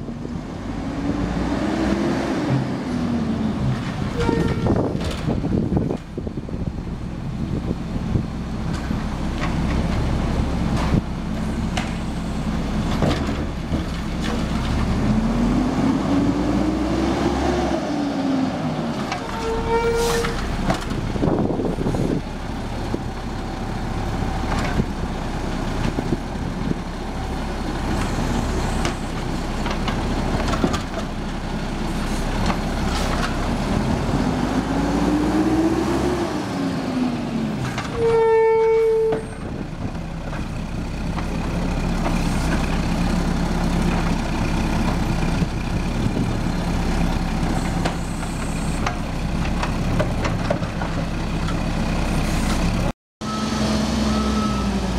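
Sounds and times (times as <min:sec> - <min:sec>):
diesel truck engine revving: 0:00.3 - 0:04.1, 0:09.2 - 0:19.0, 0:31.7 - 0:37.7, 0:51.2 - 0:54.9
short horn toot: 0:04.1 - 0:04.8, 0:19.2 - 0:20.5, 0:37.9 - 0:39.4.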